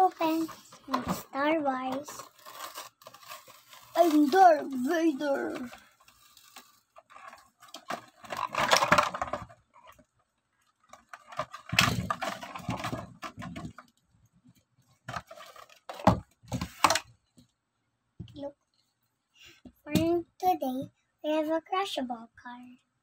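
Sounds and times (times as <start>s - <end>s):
plastic packaging crinkling: 1.9s - 10.0s, 10.9s - 14.0s, 15.1s - 16.0s.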